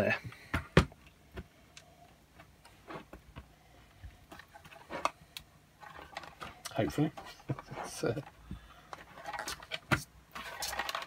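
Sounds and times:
plastic parts clicking and knocking: 0:04.3 - 0:11.0.

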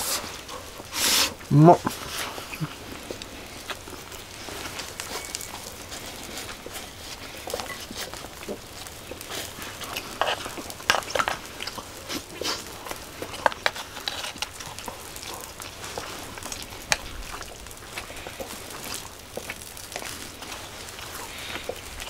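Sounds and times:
chewing and lip-smacking: 0:00.0 - 0:22.0.

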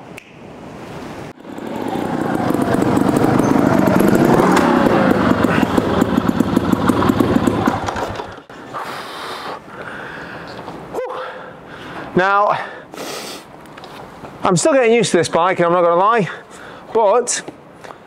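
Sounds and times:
motorbike engine revving: 0:01.4 - 0:08.5.

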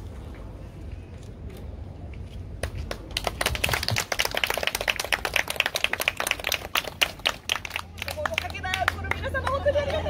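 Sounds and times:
scattered applause: 0:02.7 - 0:10.0.

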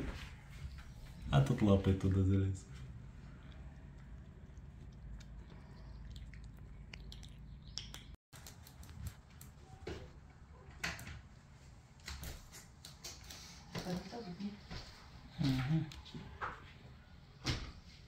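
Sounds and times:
kitten eating dry kibble: 0:03.3 - 0:07.5, 0:08.4 - 0:09.6.

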